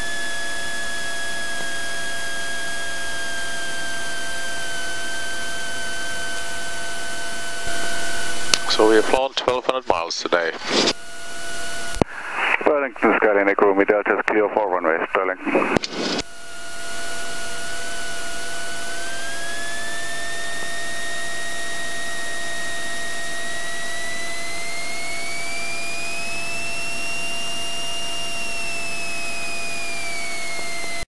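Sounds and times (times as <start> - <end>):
propeller plane engine running: 0.0 - 13.4
whining tone: 15.4 - 31.0.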